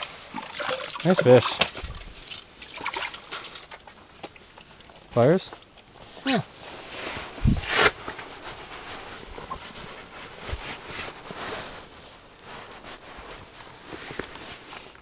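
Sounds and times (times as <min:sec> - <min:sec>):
clothing rustling: 0:05.6 - 0:15.0.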